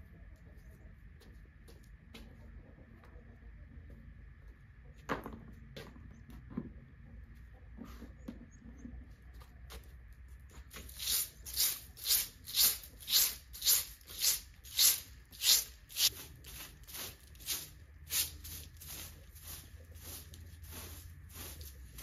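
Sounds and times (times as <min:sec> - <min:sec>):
broom sweeping concrete: 0:10.6 - 0:22.0.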